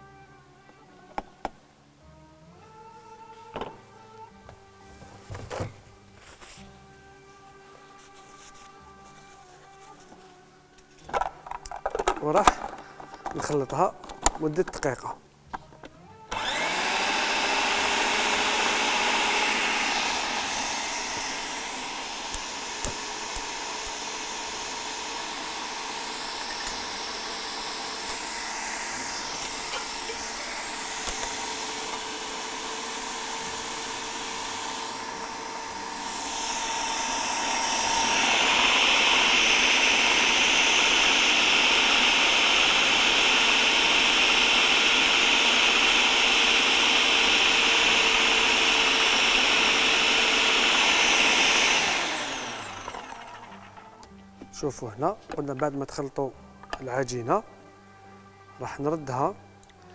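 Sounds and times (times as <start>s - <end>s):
food processor motor whining: 16.2s - 54.2s.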